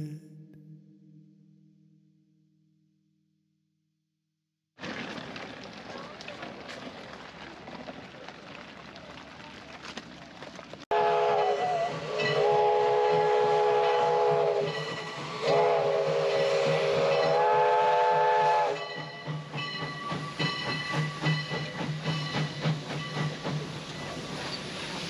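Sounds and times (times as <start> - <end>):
steam locomotive chime whistle: 10.9 - 24.8
train rhythmic clatter: 11.0 - 25.0
steam hissing: 11.6 - 25.0.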